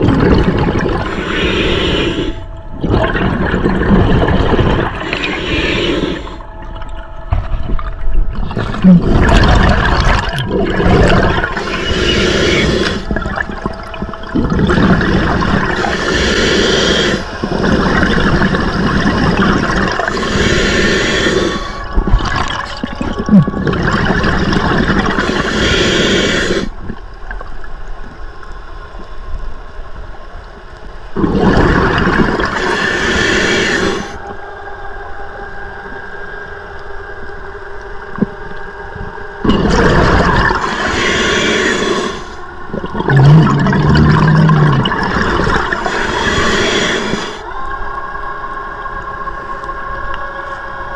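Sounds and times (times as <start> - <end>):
bursts of exhaled bubbles: 0.0 - 1.2, 2.7 - 5.3, 7.4 - 16.0, 21.9 - 25.5, 31.2 - 33.1, 39.4 - 41.0, 42.7 - 46.9
diver breathing on regulator: 0.2 - 6.5, 10.8 - 22.5, 24.8 - 26.9, 31.4 - 34.4, 39.4 - 47.6.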